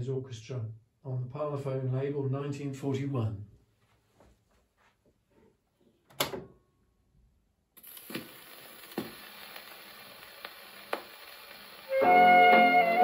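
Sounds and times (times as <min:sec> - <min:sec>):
record surface hiss and clicks: 0:07.8 - 0:13.0.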